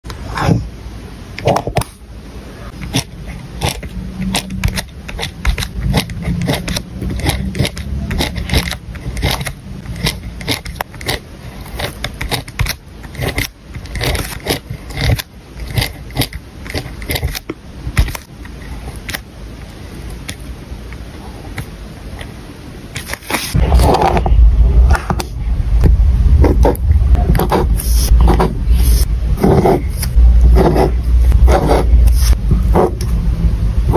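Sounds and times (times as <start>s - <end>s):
pen scratching on paper: 2.8s - 17.4s, 23.0s - 24.3s, 26.4s - 33.0s
loud deep sound: 23.6s - 33.9s.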